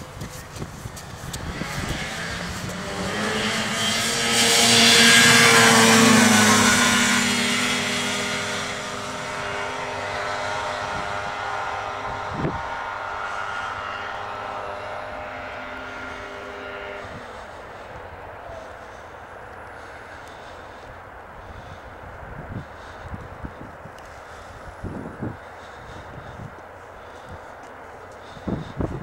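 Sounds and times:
snowmobile engine running: 0:00.0 - 0:22.0.

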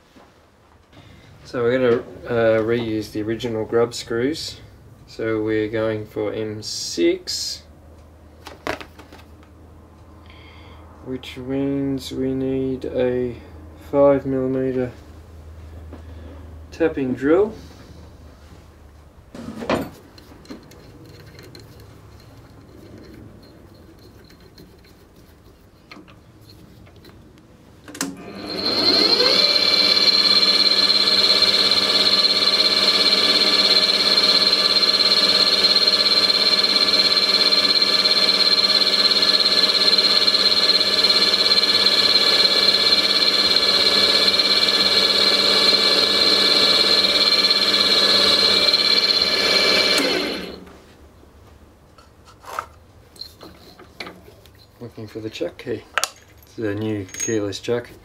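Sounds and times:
drill press whining and running: 0:28.0 - 0:50.7.

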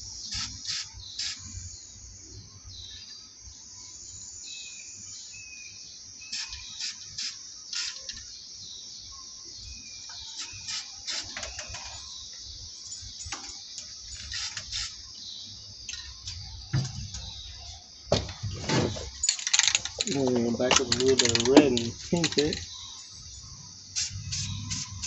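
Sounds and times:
spray paint can hissing: 0:00.2 - 0:01.6, 0:06.3 - 0:08.2, 0:10.4 - 0:11.3, 0:23.9 - 0:25.0
knocking and rattling: 0:15.9 - 0:22.8.

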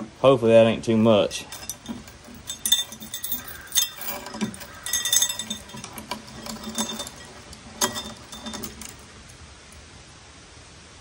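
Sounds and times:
chain clinking against weight plate: 0:01.3 - 0:09.1.

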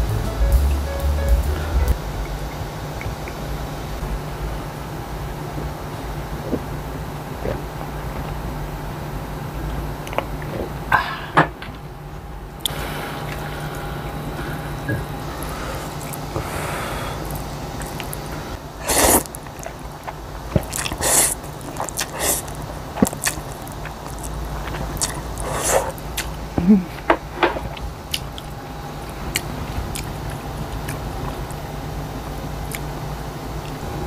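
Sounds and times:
steady low hum: 0:00.0 - 0:34.0
noodles slurped and chewed: 0:17.2 - 0:26.4, 0:27.6 - 0:32.9.

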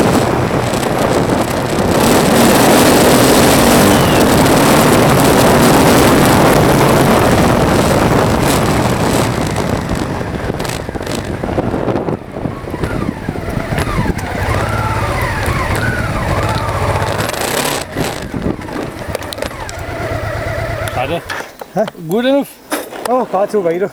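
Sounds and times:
wind noise: 0:00.0 - 0:23.8
vehicle tyres on gravel: 0:00.0 - 0:23.9
engine idling hum: 0:10.8 - 0:21.3.

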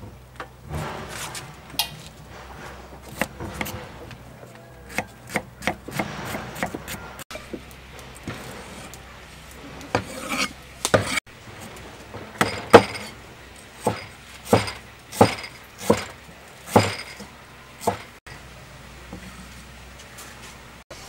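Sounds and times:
cleaver chopping on wooden block: 0:04.9 - 0:07.0, 0:13.8 - 0:16.1, 0:16.7 - 0:17.1, 0:17.8 - 0:18.1.

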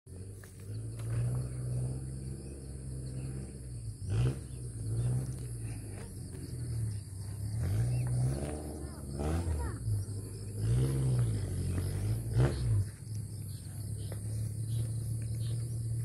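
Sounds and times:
engine running: 0:00.1 - 0:16.0.

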